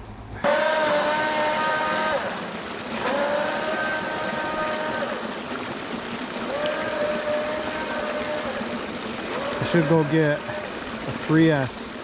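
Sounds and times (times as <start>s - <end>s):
rush of spray and water: 0.0s - 12.0s
electric motor whining: 0.4s - 5.4s, 6.4s - 10.7s.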